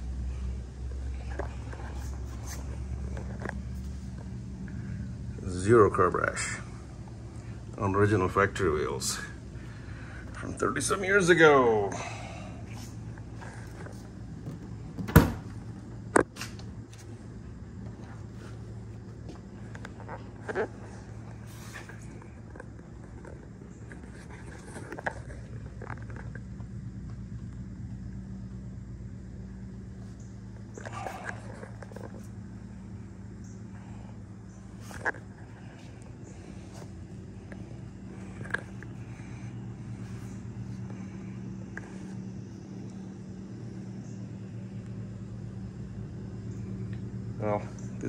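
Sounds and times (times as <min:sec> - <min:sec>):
low hum: 0:00.0 - 0:48.0.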